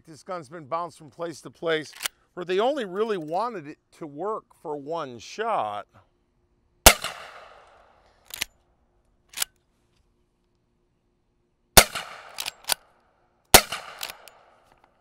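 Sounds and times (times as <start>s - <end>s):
rifle shots: 6.8s - 8.5s, 11.8s - 12.9s, 13.5s - 14.7s
rifle lever clacking: 8.3s - 8.5s, 11.9s - 12.9s, 13.6s - 14.9s.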